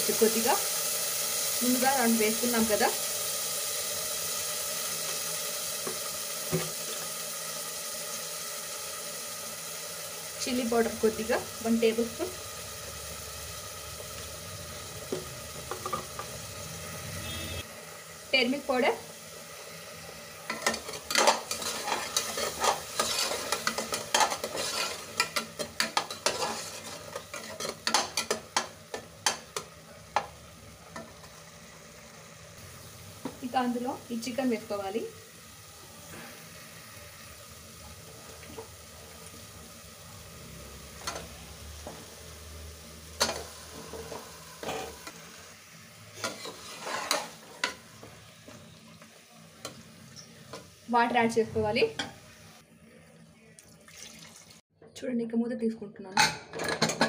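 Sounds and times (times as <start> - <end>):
paste sizzling in hot oil: 0.0 - 53.0
spatula scraping a pot: 20.5 - 29.4, 46.2 - 47.8.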